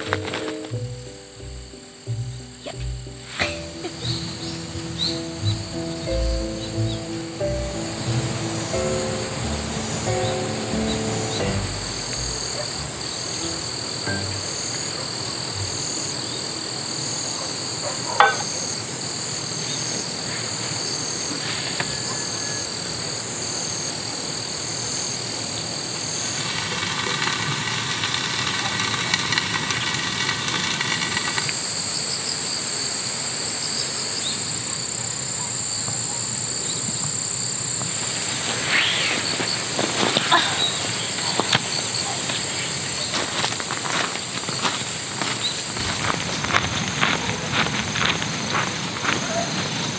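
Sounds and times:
footsteps on gravel: 0.0 - 0.8, 39.2 - 49.9
crickets and insects trilling: 0.0 - 49.9
buzzing hiss from pot: 19.5 - 45.3.

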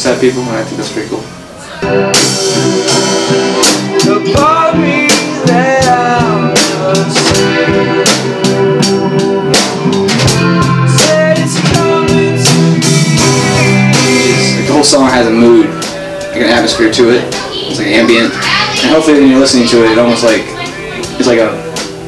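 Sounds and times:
drum kit playing: 0.0 - 22.0
electric guitar: 1.0 - 22.0
person singing: 1.6 - 14.7.

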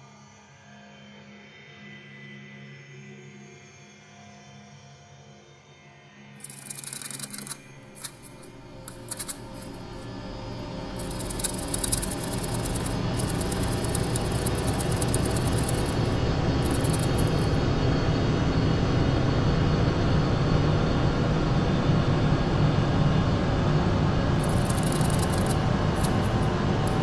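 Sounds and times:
crackling static: 6.4 - 17.6, 24.4 - 27.0.

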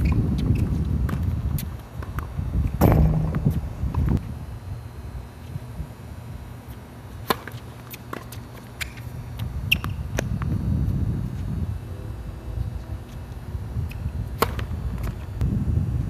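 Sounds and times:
wind rumble on microphone: 0.0 - 6.6, 9.1 - 16.0
tennis ball pops: 2.8 - 4.1.

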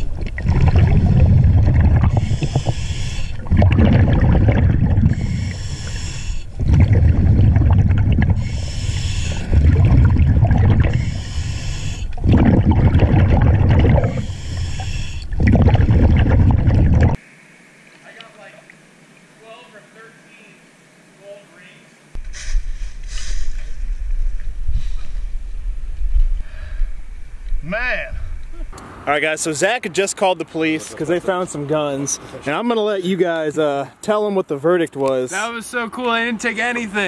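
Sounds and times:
exhaled bubbles rumbling: 0.0 - 17.2
regulator inhale hiss: 2.1 - 3.5, 5.1 - 6.6, 8.4 - 9.5, 10.9 - 12.2, 14.1 - 15.4, 22.2 - 25.3.

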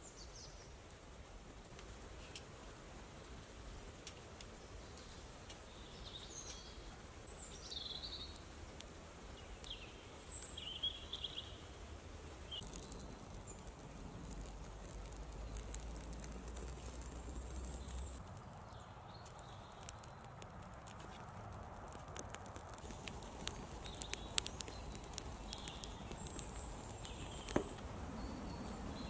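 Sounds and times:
faint hiss: 0.0 - 29.0
faint clicks: 3.4 - 5.7, 7.3 - 11.4, 12.4 - 29.0
bird chirping: 4.6 - 8.6, 9.2 - 20.4, 22.8 - 29.0.

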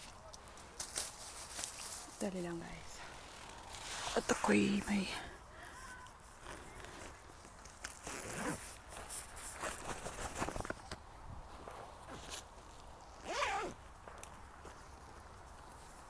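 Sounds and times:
corn leaves rustling: 0.0 - 11.0.

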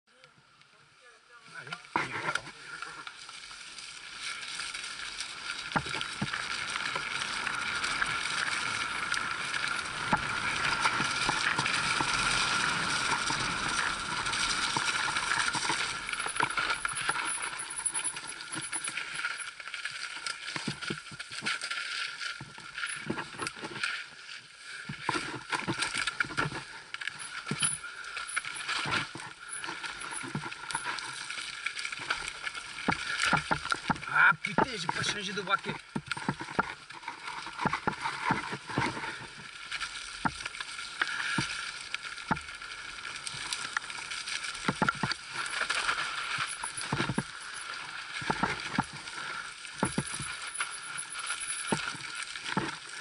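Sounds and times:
wind: 0.0 - 53.0
bike rattle on rough trail: 1.8 - 53.0
bike knocking over bumps: 49.8 - 50.4.

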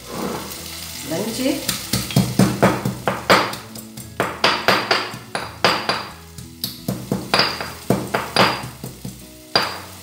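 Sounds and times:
pestle pounding in a mortar: 1.9 - 9.8.

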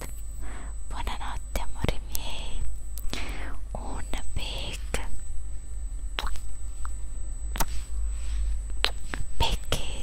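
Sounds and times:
lip smacks of blown kisses: 6.2 - 6.5, 7.6 - 7.8.

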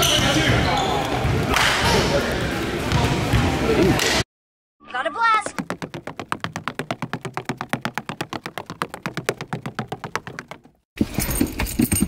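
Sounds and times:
rapid even clicking: 5.6 - 10.7
low thumps: 5.6 - 10.8.

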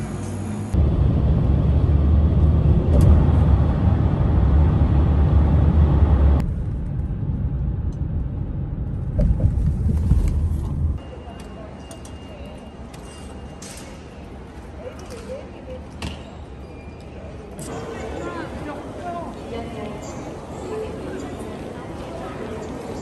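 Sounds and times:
road and engine rumble: 0.0 - 13.0.

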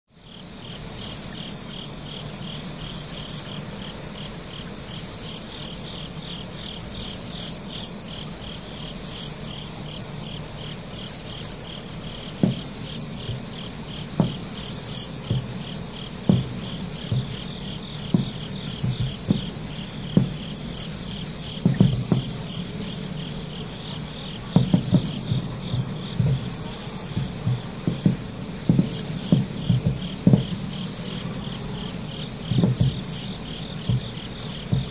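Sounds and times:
cricket chirp: 0.1 - 34.9
insects buzzing: 0.1 - 34.9
fast insect trill: 0.2 - 34.9
distant fireworks thuds: 8.8 - 34.9.

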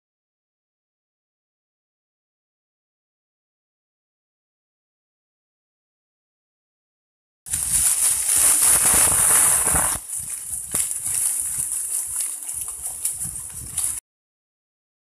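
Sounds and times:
bushes rustling: 7.5 - 13.2.

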